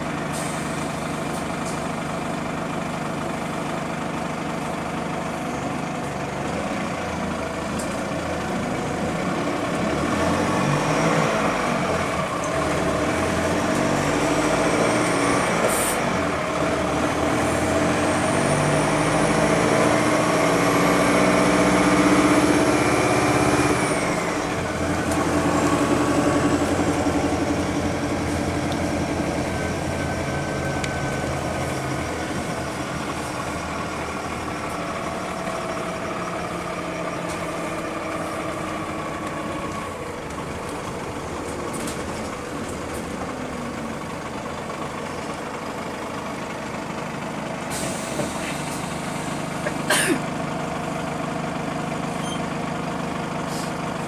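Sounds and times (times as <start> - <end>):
bus diesel engine: 0.0 - 54.0.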